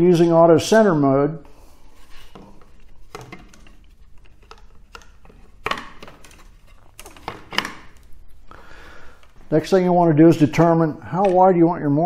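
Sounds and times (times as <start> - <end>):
plastic and wood clicks and knocks: 2.3 - 8.1.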